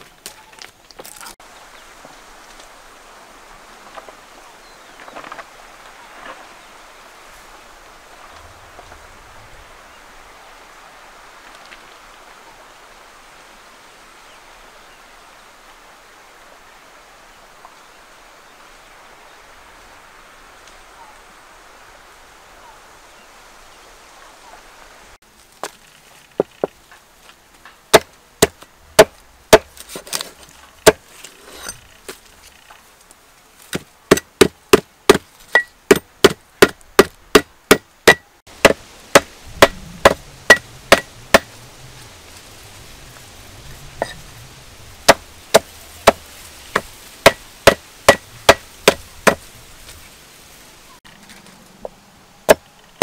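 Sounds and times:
cleaver chopping on wooden block: 0:27.9 - 0:29.7, 0:33.7 - 0:41.5, 0:45.1 - 0:49.4.

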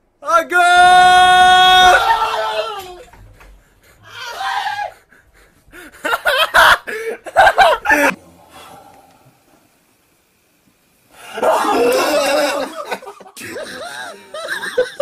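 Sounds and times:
shout falling in pitch: 0:00.3 - 0:03.1, 0:04.1 - 0:05.0, 0:11.4 - 0:12.9
excited yelling and laughter: 0:00.3 - 0:03.3, 0:04.0 - 0:08.1, 0:11.2 - 0:15.0.

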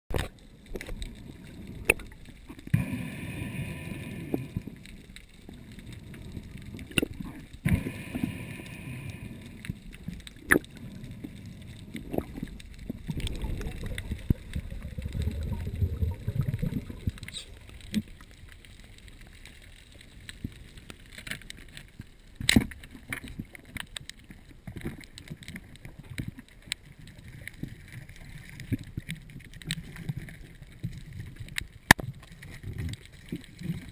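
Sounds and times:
muffled underwater bubbling: 0:00.1 - 0:19.4.

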